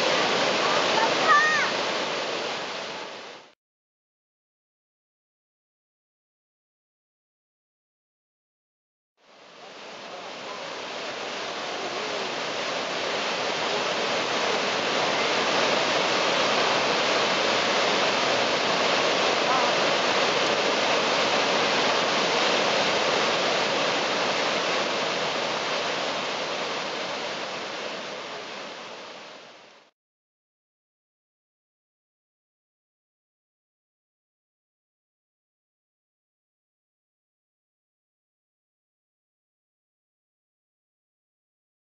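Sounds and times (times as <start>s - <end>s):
waterfall rushing: 0.0s - 3.5s, 9.2s - 29.9s.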